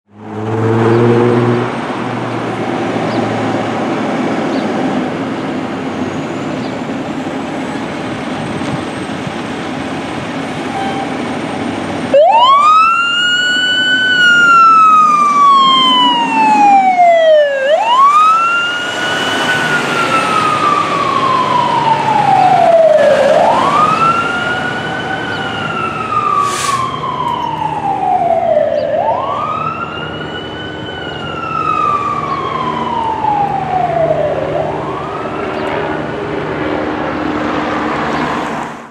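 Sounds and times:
siren wailing: 10.5 - 11.4, 12.0 - 37.3
short hiss: 26.4 - 26.8.

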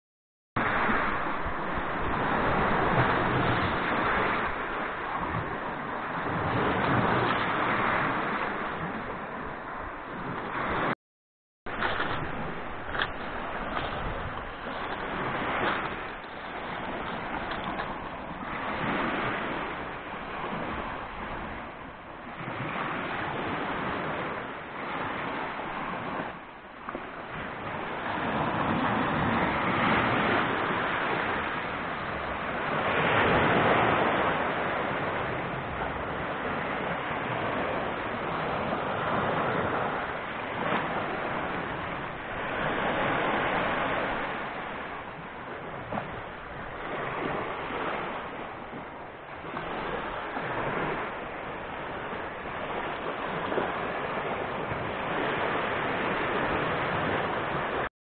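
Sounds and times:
waves washing up pebble beach: 11.7 - 21.7.

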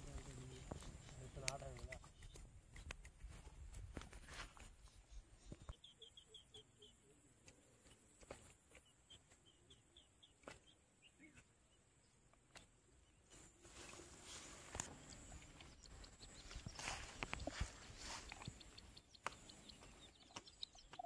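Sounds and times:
faint bird chirps: 4.5 - 21.0.

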